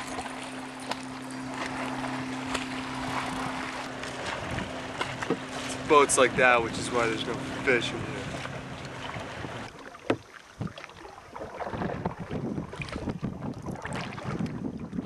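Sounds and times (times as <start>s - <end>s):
water lapping against canoe: 0.0s - 15.0s
wind on microphone: 3.0s - 9.7s, 11.4s - 15.0s.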